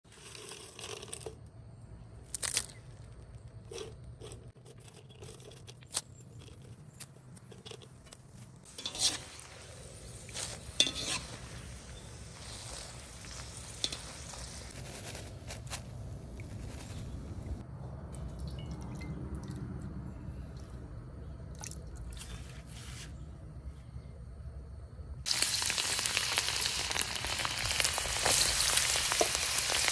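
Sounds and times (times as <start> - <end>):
chillies sizzling in a wok: 8.6 - 15.8, 25.2 - 29.9
metal utensil clinking on wok: 8.7 - 9.4, 10.8 - 11.4.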